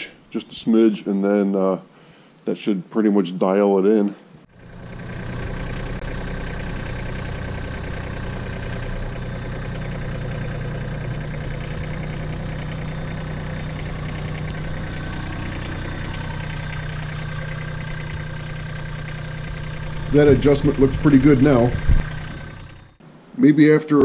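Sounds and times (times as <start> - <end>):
tractor diesel engine running: 4.5 - 23.0.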